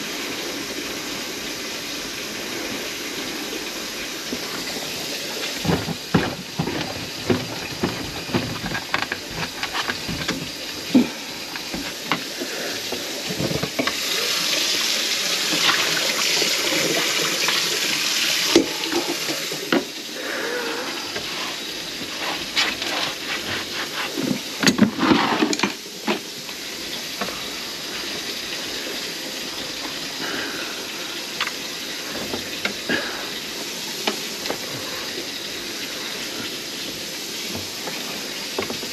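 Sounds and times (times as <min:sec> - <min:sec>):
faucet water running into sink: 0:00.0 - 0:38.9
knocks and clatter: 0:05.6 - 0:10.6.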